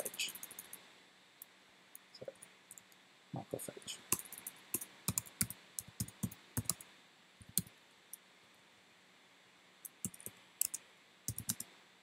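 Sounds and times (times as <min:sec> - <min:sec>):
typing on computer keyboard: 0:00.0 - 0:00.8, 0:04.1 - 0:06.8, 0:07.4 - 0:07.7, 0:09.9 - 0:11.7.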